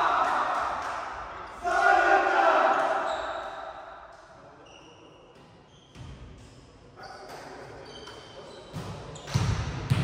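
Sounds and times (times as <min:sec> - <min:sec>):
sneakers squeaking on court: 0:04.6 - 0:06.3, 0:07.0 - 0:10.0.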